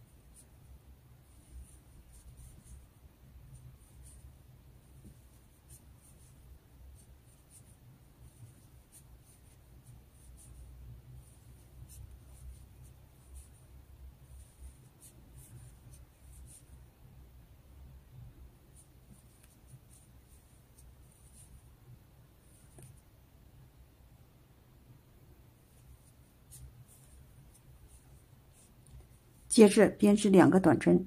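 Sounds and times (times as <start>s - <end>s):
crochet hook scratching yarn: 0.0s - 16.9s, 18.7s - 21.7s, 22.4s - 23.1s, 25.6s - 29.7s
low steady hum: 0.0s - 31.0s.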